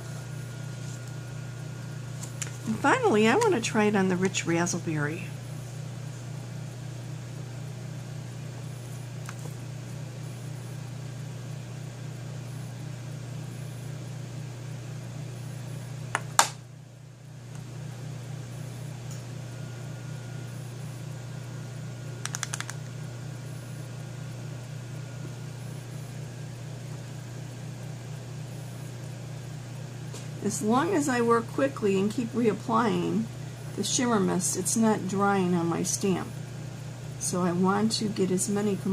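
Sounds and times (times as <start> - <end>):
steady low hum: 0.0 - 38.9
rattle of small clicks: 22.2 - 22.9.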